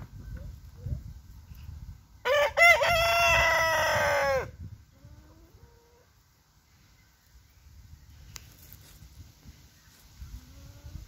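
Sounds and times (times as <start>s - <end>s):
rooster crowing: 2.2s - 4.5s.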